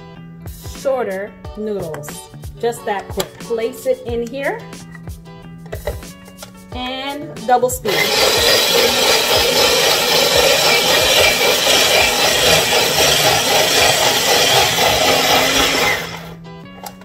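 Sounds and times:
electric spiralizer motor running: 0:07.9 - 0:16.4.

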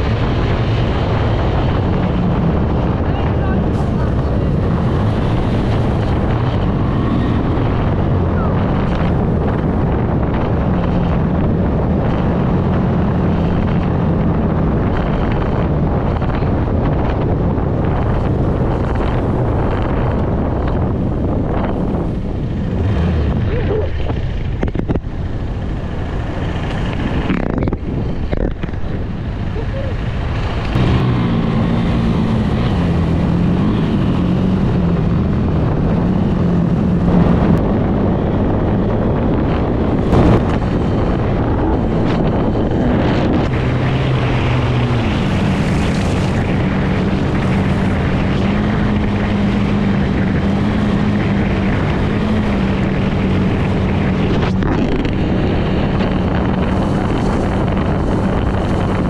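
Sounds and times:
motorcycle engine running: 0:00.0 - 0:59.0
wind noise on microphone: 0:00.0 - 0:59.0.

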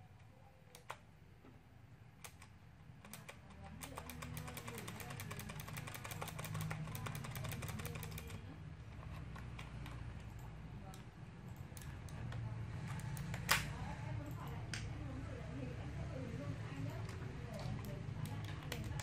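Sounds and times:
mechanical keyboard keys clicking: 0:02.2 - 0:08.4, 0:16.9 - 0:19.0.

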